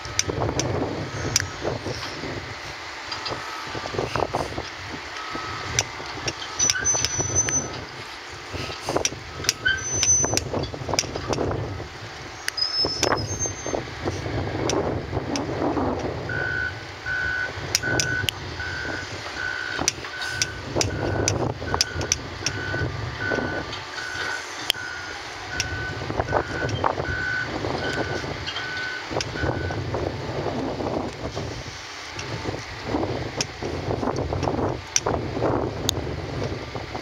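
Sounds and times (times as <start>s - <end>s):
excavator engines rumbling: 0.0s - 37.0s
backup alarm beeping: 5.2s - 5.8s, 6.5s - 7.9s, 16.3s - 29.8s.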